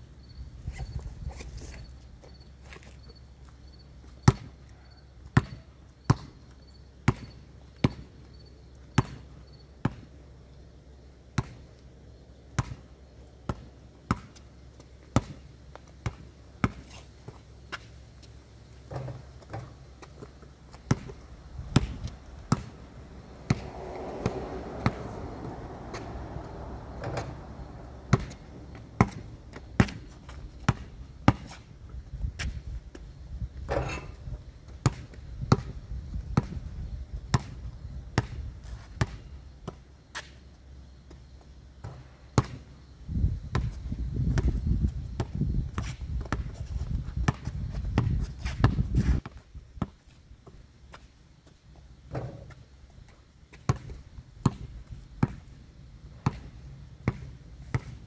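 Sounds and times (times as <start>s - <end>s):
low rumbling noise: 21.3s - 29.8s.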